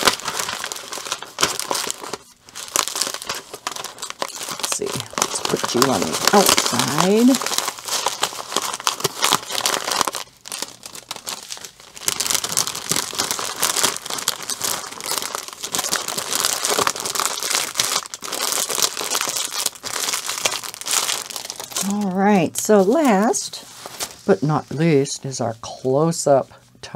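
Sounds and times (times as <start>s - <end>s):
plastic packaging crinkling: 0.0s - 25.2s.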